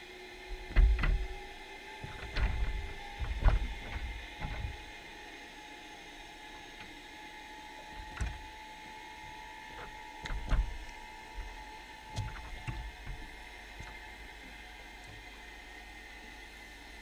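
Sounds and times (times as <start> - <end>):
faint steady whine: 0.0 - 17.0.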